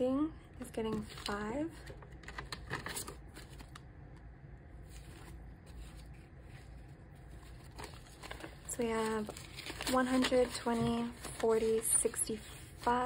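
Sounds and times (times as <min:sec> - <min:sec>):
paper banknotes rustling: 0:04.8 - 0:13.0.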